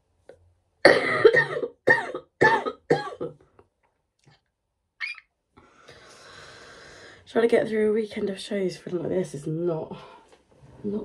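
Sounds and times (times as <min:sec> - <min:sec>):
woman coughing: 0:00.8 - 0:03.4.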